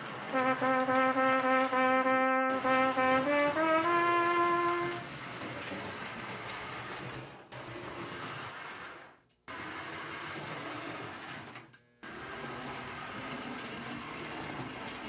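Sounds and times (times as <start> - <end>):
model train rumbling on track: 0.0 - 15.0.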